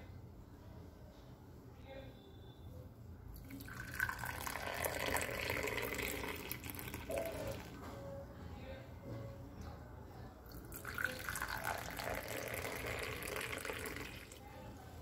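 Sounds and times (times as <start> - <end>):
tea pouring into a mug: 3.4 - 7.8, 10.5 - 14.5.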